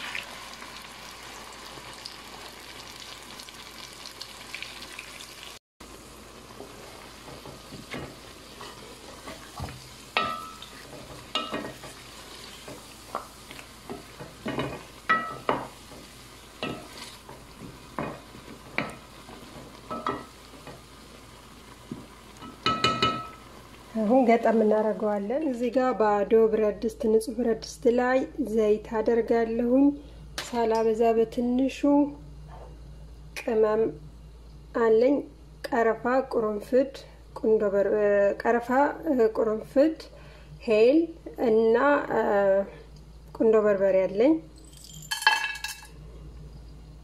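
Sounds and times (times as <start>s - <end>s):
sizzling: 0.0s - 26.0s
wooden spoon stirring food in pot: 6.5s - 20.9s
spoon knocking against pot: 22.4s - 23.4s.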